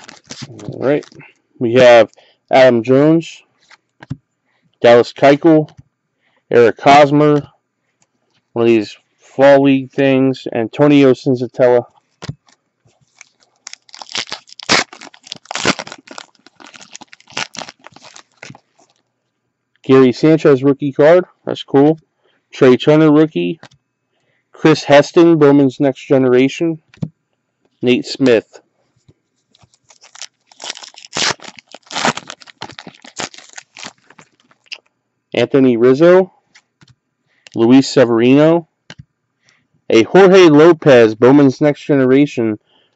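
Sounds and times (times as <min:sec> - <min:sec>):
foil wrapper tearing and crinkling: 0:00.0 - 0:01.2, 0:12.4 - 0:19.0, 0:29.6 - 0:34.8.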